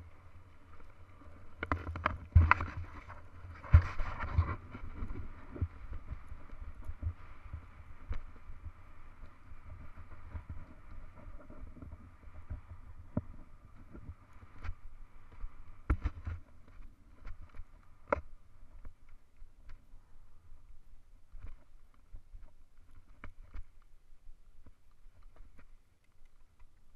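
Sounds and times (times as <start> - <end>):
bike tyres rumbling on dirt: 0.0 - 18.1
wind on microphone: 1.5 - 18.9.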